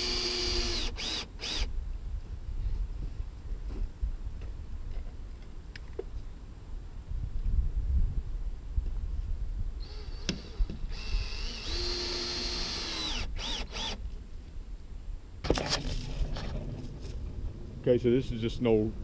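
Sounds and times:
cordless drill driving screws: 0:00.0 - 0:01.7, 0:09.8 - 0:14.0.

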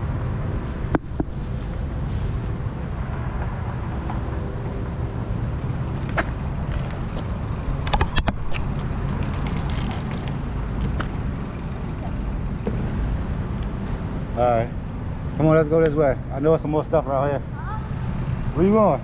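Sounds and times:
bike tyres rumbling on pavement: 0:00.0 - 0:15.2, 0:16.9 - 0:19.0
bike clicks and rattles: 0:00.6 - 0:02.5, 0:03.4 - 0:14.1, 0:17.5 - 0:19.0.

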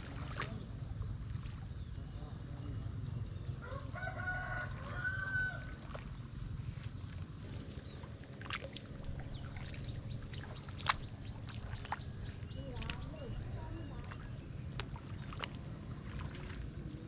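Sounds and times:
mud and water sloshing: 0:00.0 - 0:01.9, 0:04.7 - 0:17.0
steady high whine: 0:00.0 - 0:17.0
rooster crowing: 0:03.6 - 0:05.8.

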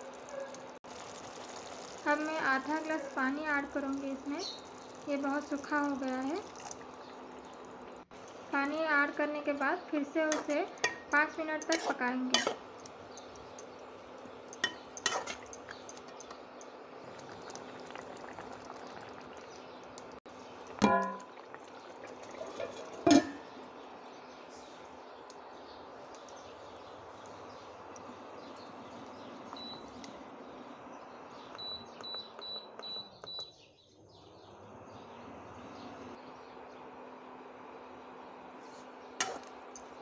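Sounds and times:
gravy bubbling and popping: 0:00.0 - 0:08.5, 0:10.3 - 0:23.5
fan hum: 0:01.2 - 0:32.6
cooktop button beeps: 0:29.6 - 0:29.9, 0:31.6 - 0:33.5.

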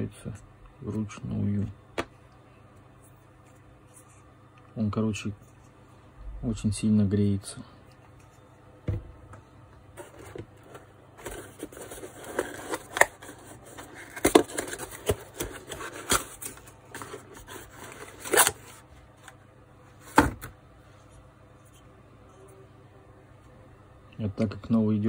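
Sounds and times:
cardboard rustling and scraping: 0:10.0 - 0:18.8.

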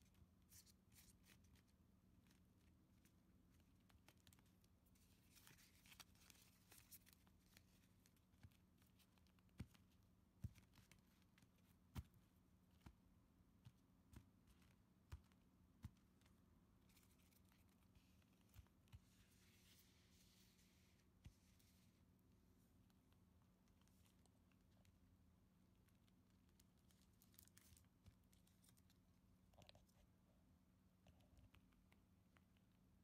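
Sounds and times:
playing cards rustling: 0:00.4 - 0:22.0.

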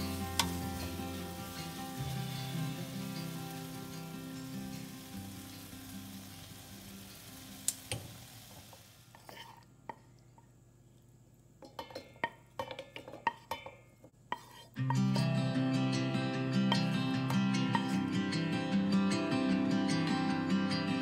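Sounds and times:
background music: 0:00.0 - 0:07.6, 0:14.8 - 0:21.0
hot pan sizzling: 0:00.0 - 0:09.6, 0:14.3 - 0:18.3.

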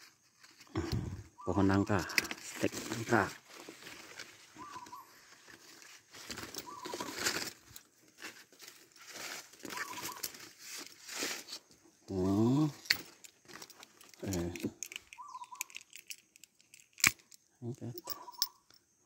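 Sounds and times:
foliage rustling: 0:00.2 - 0:15.8
whistled bird call: 0:04.6 - 0:05.2, 0:06.6 - 0:07.1, 0:09.7 - 0:10.2, 0:15.2 - 0:15.7.

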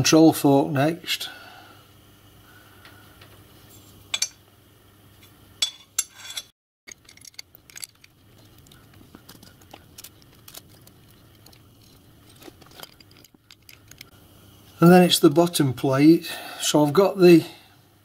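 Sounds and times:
small metal parts clicking: 0:06.2 - 0:14.1.

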